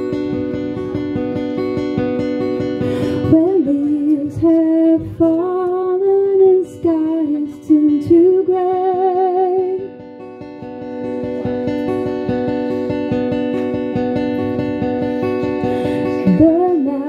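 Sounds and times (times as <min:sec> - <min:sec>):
acoustic guitar strummed: 0:00.0 - 0:17.0
woman singing: 0:03.1 - 0:10.0, 0:15.4 - 0:17.0.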